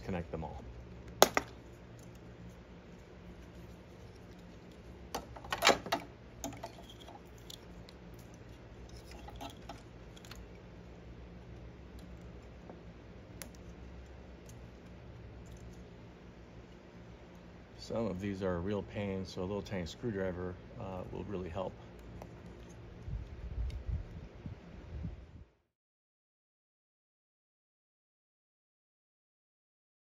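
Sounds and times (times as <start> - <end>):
plugs and wires rattling: 5.1 - 7.6.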